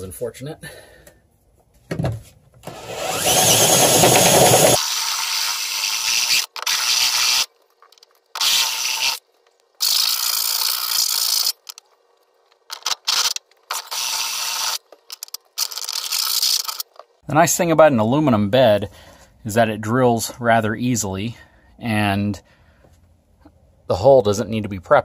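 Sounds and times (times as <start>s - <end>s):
cordless drill cutting metal: 2.7s - 7.5s, 8.4s - 9.2s, 9.8s - 11.6s, 13.1s - 14.8s.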